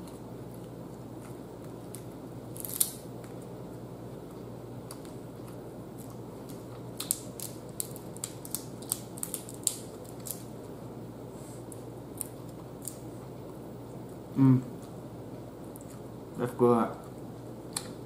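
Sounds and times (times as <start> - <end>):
steady low hum: 0.0 - 18.0
crab shell cracking and snapping: 1.9 - 3.4, 4.8 - 10.5, 12.1 - 13.0.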